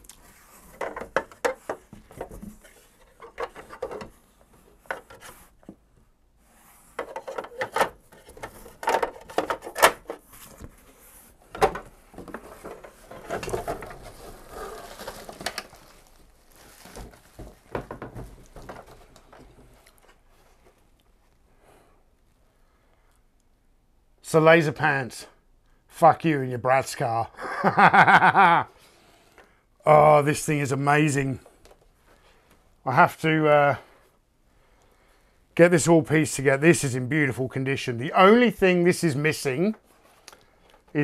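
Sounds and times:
cardboard scraping and rustling: 6.6s - 19.8s.

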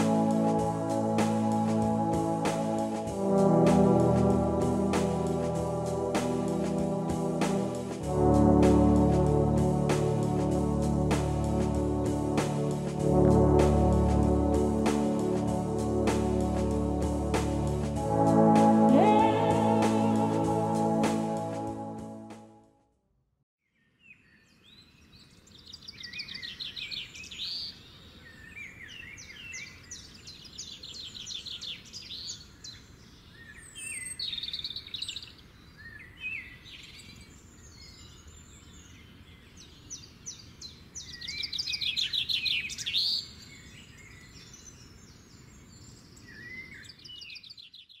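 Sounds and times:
birdsong trills and chirps: 24.0s - 48.0s.

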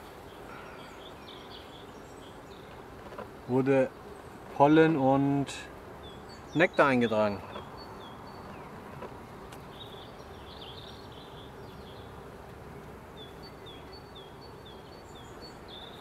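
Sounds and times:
honey bees buzzing: 0.0s - 16.0s
small bird chirping: 6.0s - 8.8s, 13.2s - 16.0s.

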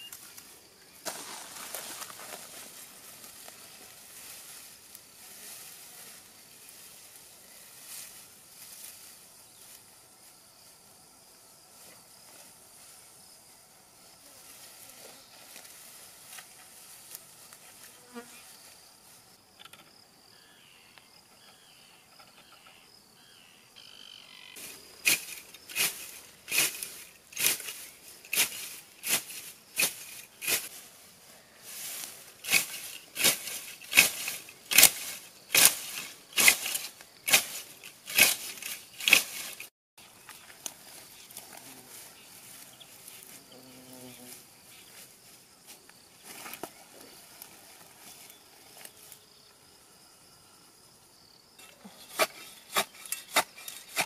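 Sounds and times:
sickle cutting grass: 0.0s - 10.4s, 14.3s - 19.2s, 24.6s - 49.3s, 51.6s - 54.0s
rustle of grass and branches: 0.0s - 19.5s, 24.6s - 50.1s
faint insect buzzing: 0.0s - 27.1s, 40.2s - 52.1s.

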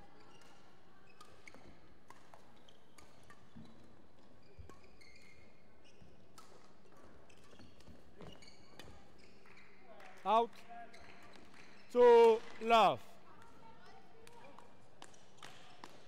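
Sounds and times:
court shoes squeaking: 3.3s - 6.5s, 7.3s - 8.9s
sports hall background: 7.4s - 16.0s.

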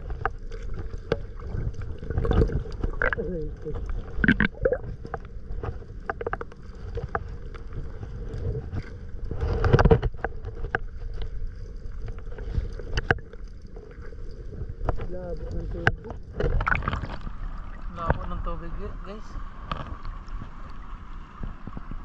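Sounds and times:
shallow seawater splashing: 0.0s - 22.0s
small clicks and knocks: 5.0s - 7.7s, 9.5s - 11.4s, 12.0s - 15.1s.

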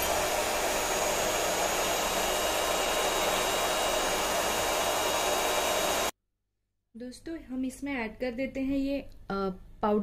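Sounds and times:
electric hand mixer running: 0.0s - 6.2s.

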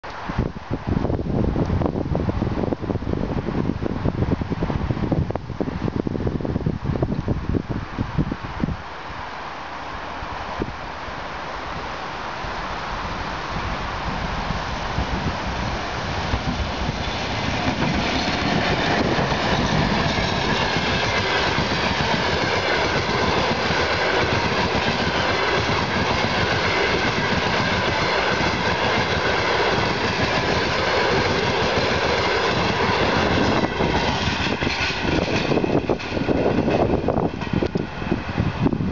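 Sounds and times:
train wheels rumbling on rails: 9.9s - 38.9s.

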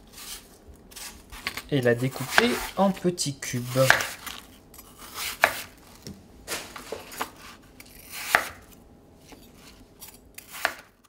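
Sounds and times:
knife chopping on plastic board: 2.2s - 2.8s, 3.8s - 4.3s, 5.0s - 7.5s, 8.1s - 8.7s, 10.4s - 10.9s.

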